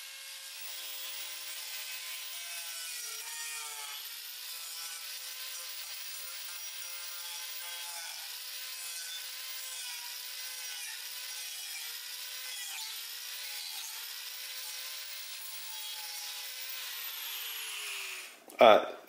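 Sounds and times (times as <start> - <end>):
angle grinder cutting wood: 0.0 - 18.6.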